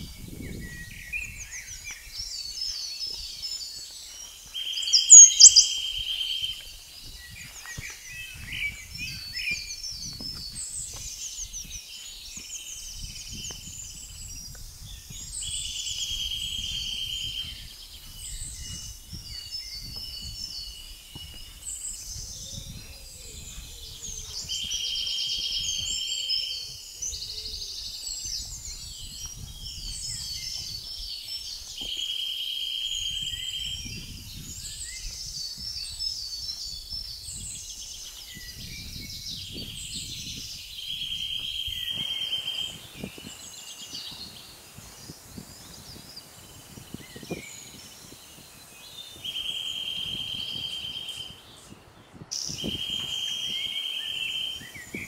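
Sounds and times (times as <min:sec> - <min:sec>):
small birds singing: 0:00.0 - 0:55.0
high bird trill: 0:04.6 - 0:06.7.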